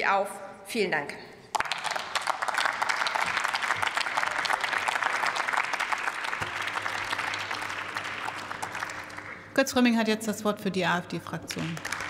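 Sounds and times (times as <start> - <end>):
many hands clapping: 1.5 - 9.6, 11.5 - 12.0.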